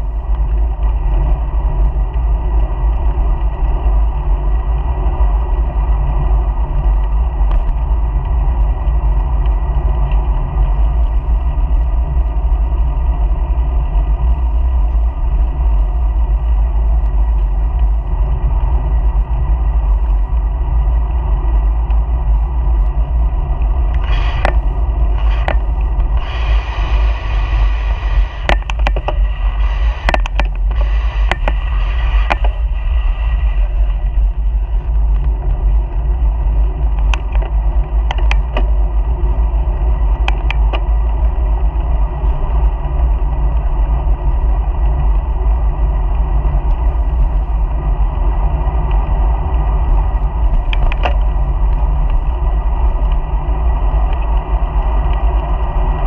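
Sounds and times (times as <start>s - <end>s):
wind and road noise: 0.0s - 56.0s
sharp clicks and knocks: 23.9s - 26.3s, 28.3s - 29.3s, 29.9s - 31.6s, 32.2s - 32.7s, 36.9s - 38.8s, 40.2s - 40.9s, 50.6s - 51.3s.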